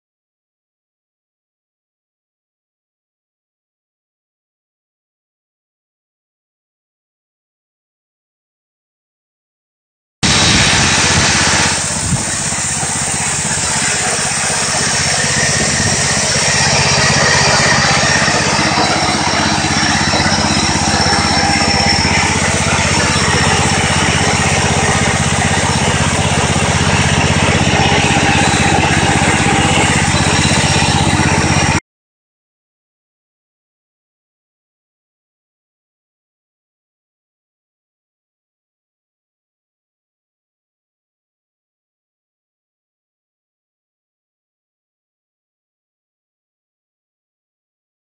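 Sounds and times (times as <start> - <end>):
chainsaw mill engine running: 10.2 - 31.8.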